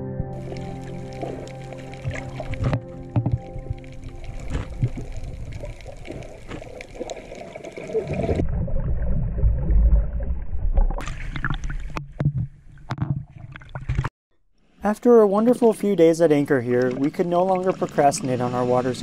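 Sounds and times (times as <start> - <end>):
muffled underwater rumble: 0.4 - 11.2
bubbling: 0.4 - 14.1, 16.5 - 19.0
splashing and lapping waves: 0.4 - 14.1, 16.6 - 19.0.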